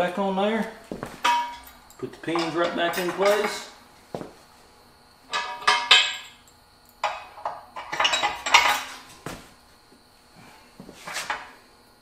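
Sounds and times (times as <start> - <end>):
metal pins clinking: 1.2 - 3.8, 5.3 - 9.1.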